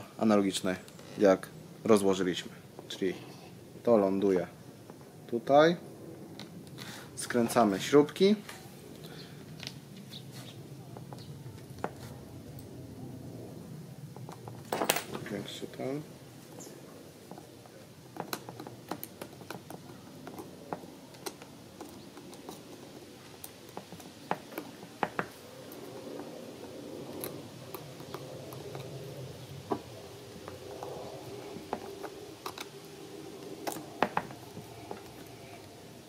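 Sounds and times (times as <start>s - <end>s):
faint steady hum: 0.0s - 36.0s.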